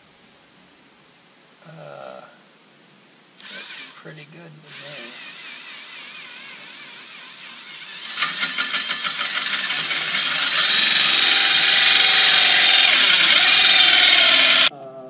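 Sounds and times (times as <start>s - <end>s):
drill whine: 3.4s - 14.7s
hole saw chattering through fibreglass: 3.4s - 14.7s.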